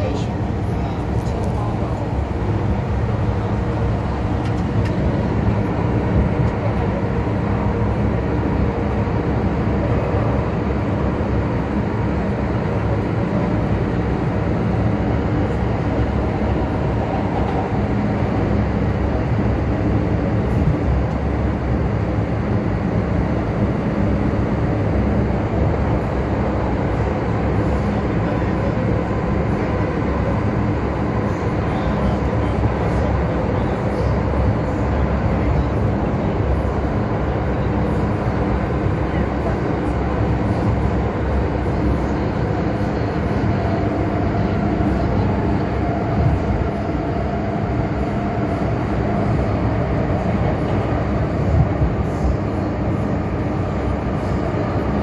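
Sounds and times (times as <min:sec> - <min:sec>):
wheels rumbling on rails: 0:00.0 - 0:55.0.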